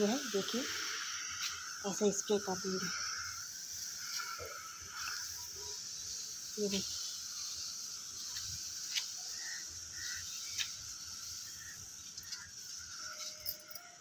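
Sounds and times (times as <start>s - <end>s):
steady high hiss: 0.0s - 14.0s
spray bottle squirting: 3.8s - 13.4s.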